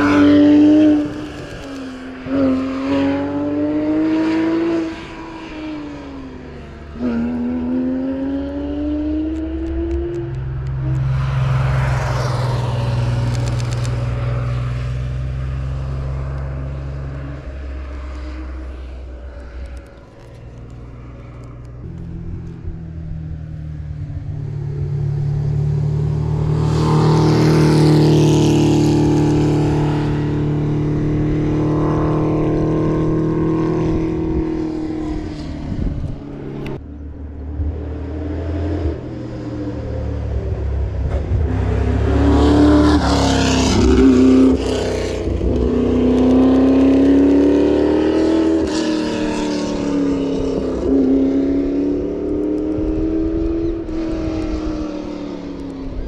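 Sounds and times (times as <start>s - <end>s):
rally car engines passing: 0.0s - 56.0s.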